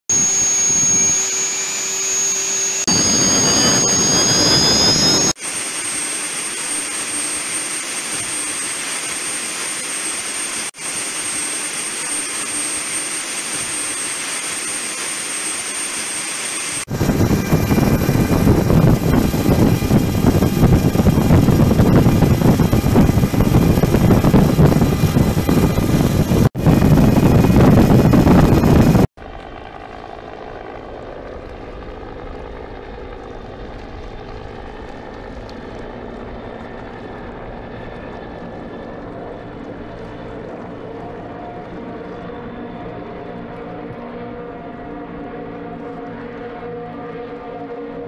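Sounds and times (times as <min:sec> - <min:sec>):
outboard motors running flat out: 0:00.1 - 0:05.4, 0:16.8 - 0:43.1.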